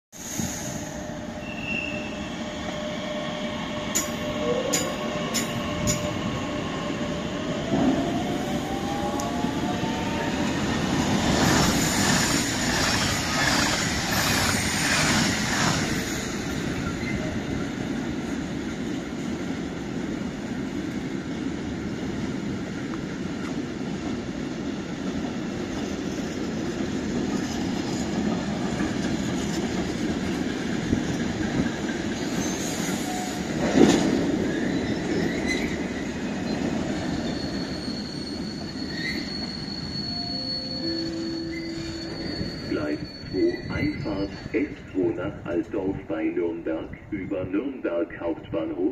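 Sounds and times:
train wheels rumbling on rail: 0.2 - 48.8
wheel squeals: 32.2 - 33.4, 34.5 - 44.4.

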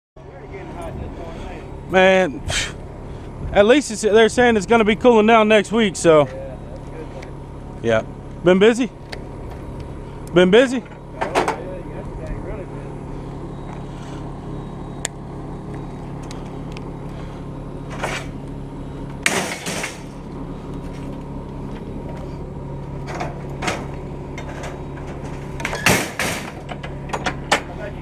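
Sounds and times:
engine idling: 0.2 - 28.0
scrap metal clanks and rattles: 17.8 - 18.4, 19.1 - 22.4, 23.0 - 27.9.

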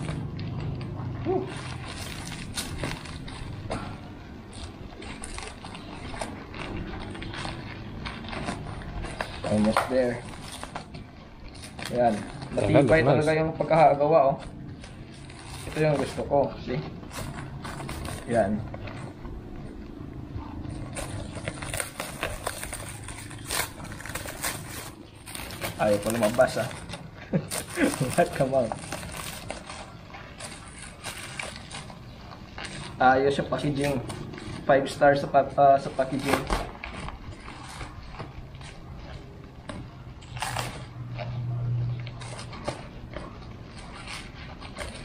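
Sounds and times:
low hum: 0.0 - 45.0
plastic packaging crinkling: 0.0 - 45.0
rustling of wrapping: 0.0 - 45.0.

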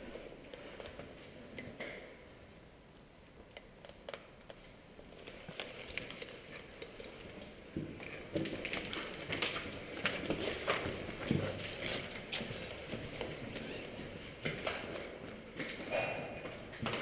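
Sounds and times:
footsteps crunching on debris: 5.6 - 15.0.

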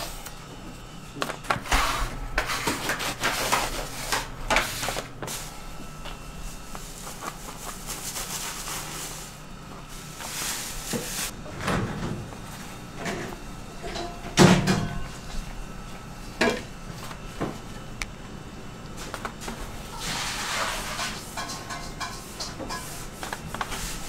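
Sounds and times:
kitchen knocks and clatters: 10.8 - 15.3, 19.0 - 23.9.

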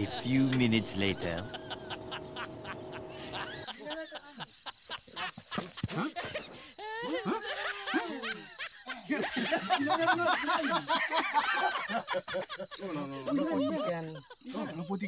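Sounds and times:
people laughing hard: 0.0 - 15.0.

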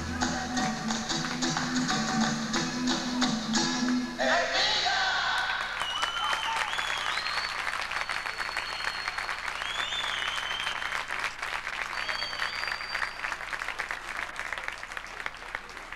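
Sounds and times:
audience applauding: 5.3 - 15.9
high whistles: 5.8 - 11.1, 11.9 - 13.4.

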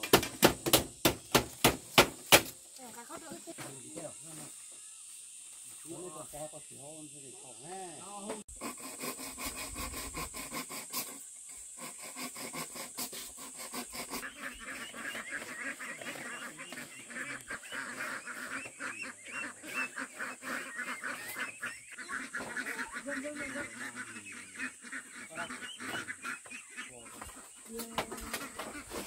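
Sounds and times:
steady high-pitched hiss: 1.0 - 17.3
ducks calling: 8.0 - 29.0.

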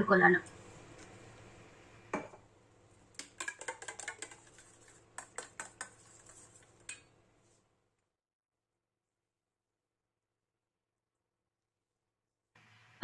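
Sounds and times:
spoon clinking against metal bowl: 3.2 - 4.6.

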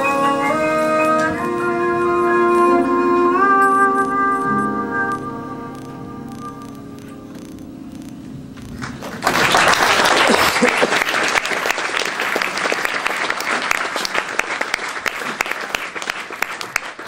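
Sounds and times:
jazz tune: 0.0 - 9.8
audience applause: 8.8 - 17.0.

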